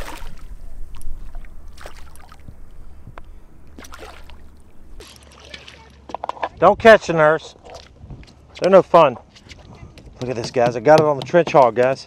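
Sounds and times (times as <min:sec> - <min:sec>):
wind rumble on microphone: 0:00.0 - 0:05.0, 0:06.4 - 0:08.4
shark splashing at surface: 0:03.8 - 0:05.8.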